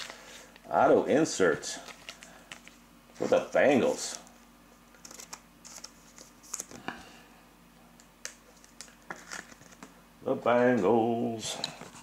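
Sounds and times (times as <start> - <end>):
trading cards rustling: 1.7 - 4.3, 4.9 - 6.9, 8.2 - 9.9.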